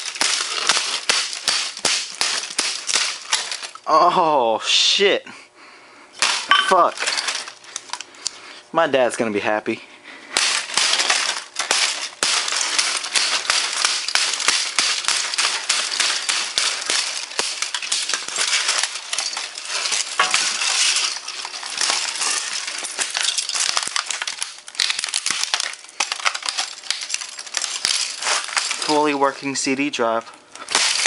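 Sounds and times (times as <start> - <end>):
plastic casing cracking: 0.0 - 3.8, 10.4 - 29.2, 30.6 - 31.0
plastic fragments clinking: 0.0 - 4.0, 6.2 - 8.1, 10.3 - 29.7, 30.5 - 31.0.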